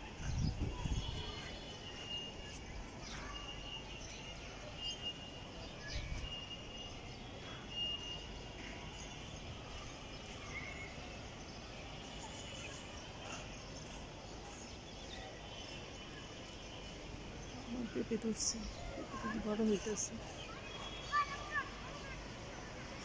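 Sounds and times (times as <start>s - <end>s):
low rumble on microphone: 0.0s - 1.3s
steady background noise: 0.0s - 23.0s
small birds chirping: 0.1s - 23.0s.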